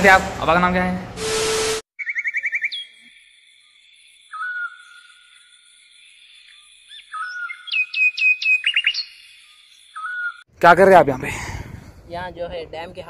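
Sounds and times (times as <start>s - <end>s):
birdsong whistles and chirps: 2.0s - 10.5s.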